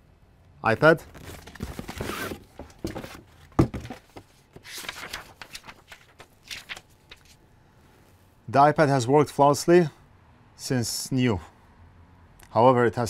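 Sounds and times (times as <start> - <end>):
cardboard and paper rustling: 1.0 - 7.4.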